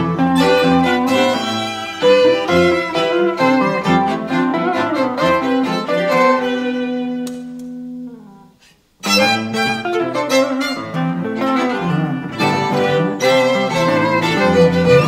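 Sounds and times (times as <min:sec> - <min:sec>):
strings and electric guitar music: 0:00.0 - 0:15.0.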